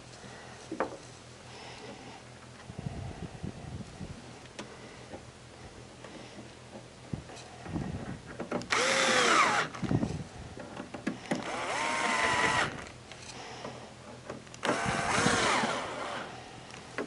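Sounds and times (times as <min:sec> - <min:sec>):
cordless drill driving screws: 0:08.7 - 0:09.8, 0:11.4 - 0:12.9, 0:14.6 - 0:16.3.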